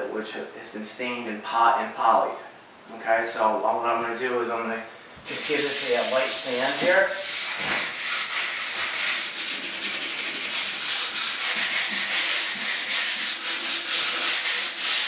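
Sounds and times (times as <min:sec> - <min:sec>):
sandpaper rubbing on a door: 0:05.3 - 0:15.0.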